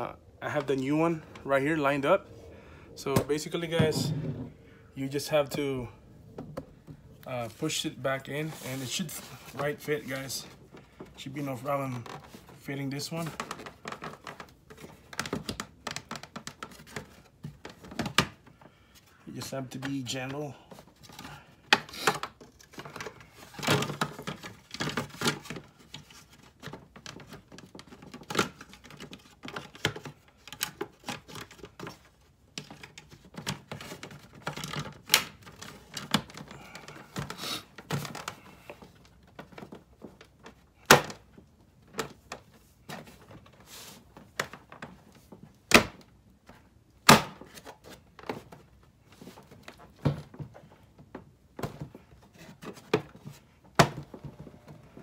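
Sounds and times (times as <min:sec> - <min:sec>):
plastic clicks and knocks: 0:13.3 - 0:18.6.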